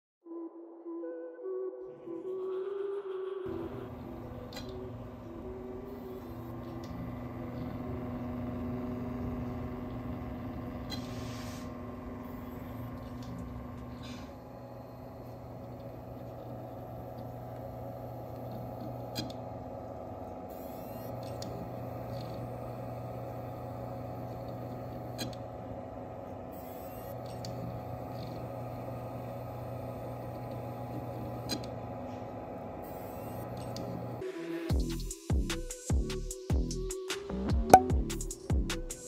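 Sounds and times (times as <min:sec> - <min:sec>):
computer fan hum: 0:03.5 - 0:34.2
hard drive spinning: 0:03.5 - 0:34.2.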